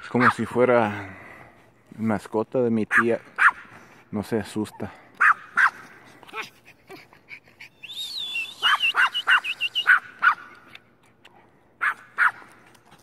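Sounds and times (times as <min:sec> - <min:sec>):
dog whining and yipping: 0:06.3 - 0:10.4.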